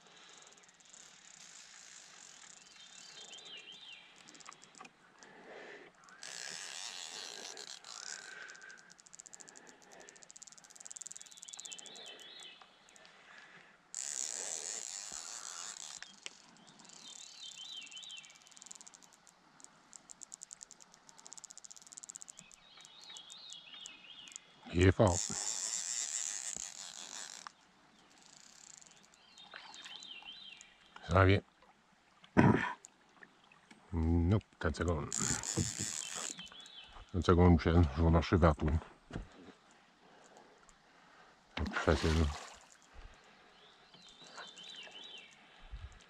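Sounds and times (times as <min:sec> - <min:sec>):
rapid reel clicking: 0:00.0 - 0:03.5, 0:06.1 - 0:12.2, 0:14.0 - 0:23.4, 0:25.0 - 0:27.5, 0:28.1 - 0:29.2, 0:35.1 - 0:36.4
fly reel drag buzzing: 0:00.0 - 0:13.1, 0:13.9 - 0:30.7, 0:34.7 - 0:37.1, 0:41.6 - 0:43.4.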